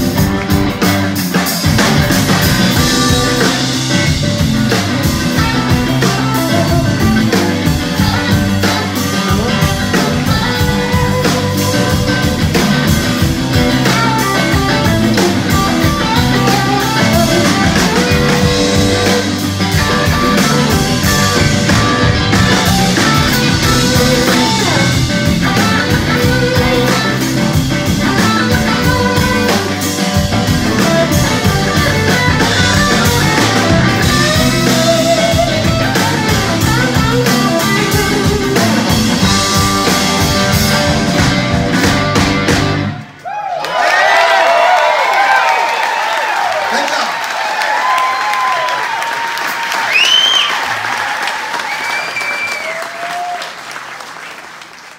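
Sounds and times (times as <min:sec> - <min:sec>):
electric bass: 0:00.0 - 0:43.2
electric guitars: 0:00.0 - 0:43.2
drum kit: 0:00.0 - 0:43.4.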